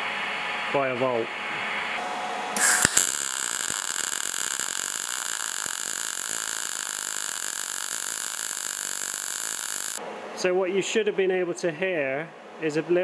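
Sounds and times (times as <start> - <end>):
welding arc crackling sizzle: 2.6 - 10.0.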